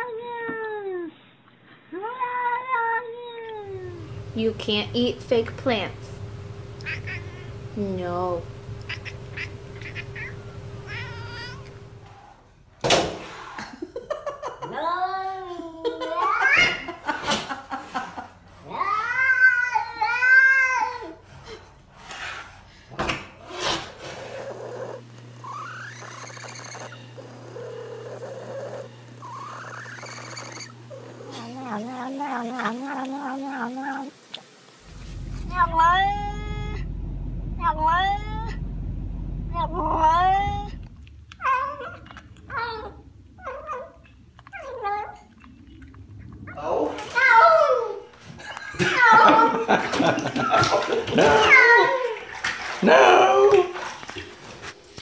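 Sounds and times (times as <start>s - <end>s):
steady low hum: 3.6s - 12.8s, 21.2s - 50.9s
car low rumble: 3.8s - 12.0s, 34.8s - 47.4s
cat growling and yowling: 8.8s - 11.7s, 24.4s - 34.2s, 35.0s - 38.7s, 39.5s - 48.1s
cat meowing: 8.8s - 11.8s, 35.4s - 36.8s.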